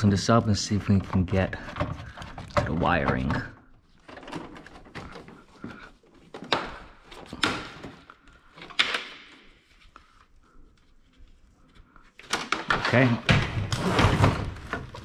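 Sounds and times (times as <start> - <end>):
hollow plastic knocks and scrapes: 0.6 - 8.0.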